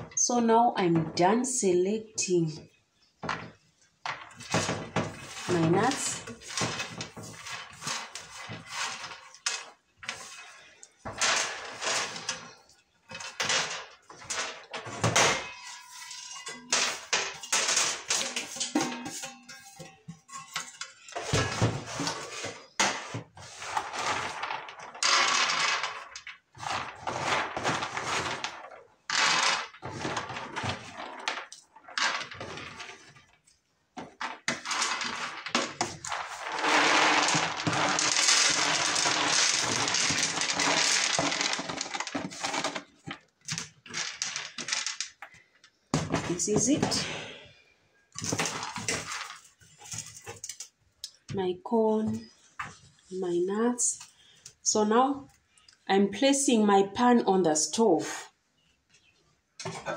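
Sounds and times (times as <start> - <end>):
groundnuts rattling on metal tray: 11.1 - 21.0, 23.8 - 33.0, 34.2 - 45.2.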